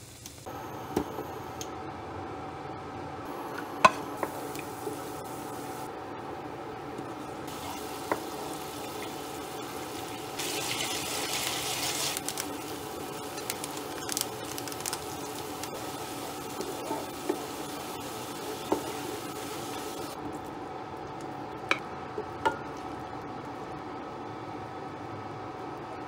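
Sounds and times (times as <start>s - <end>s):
sauce sizzling in a frying pan: 7.5s - 20.2s.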